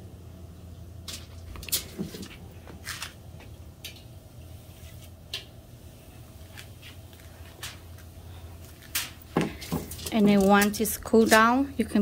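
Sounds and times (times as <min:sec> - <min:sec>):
steady low hum: 0:00.0 - 0:12.0
light clicks and taps of utensils: 0:03.4 - 0:04.1.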